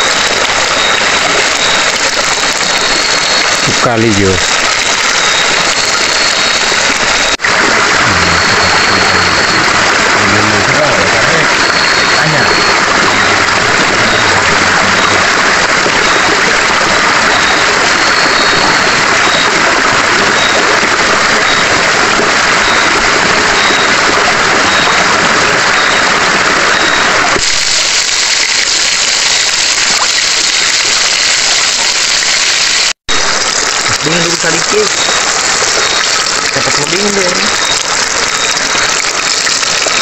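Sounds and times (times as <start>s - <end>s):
shrimp sizzling in oil: 27.4s - 33.9s.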